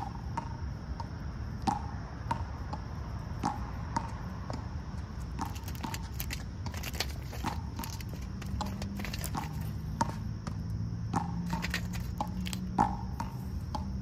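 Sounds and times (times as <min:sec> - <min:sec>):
squirrel crunching shells: 0:05.2 - 0:10.3, 0:11.4 - 0:12.9.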